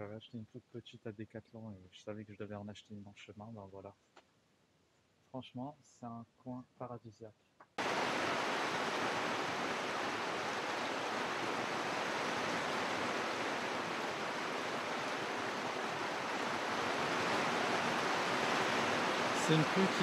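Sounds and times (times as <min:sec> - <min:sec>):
heavy rain falling: 0:07.8 - 0:20.0.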